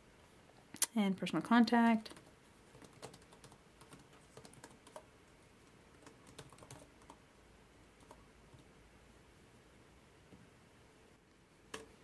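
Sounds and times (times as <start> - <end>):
typing on computer keyboard: 2.0 - 5.1, 6.0 - 7.2, 8.0 - 8.6.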